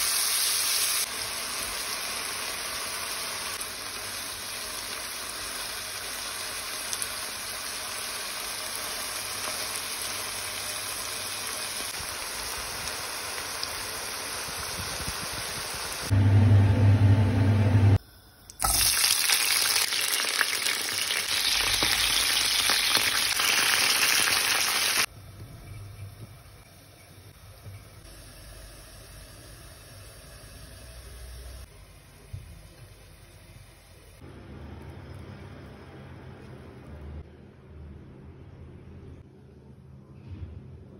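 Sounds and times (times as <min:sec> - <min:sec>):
meat and onions sizzling in a pan: 0:00.0 - 0:16.1, 0:18.2 - 0:25.1, 0:26.0 - 0:31.8
loud low hum: 0:16.1 - 0:18.0.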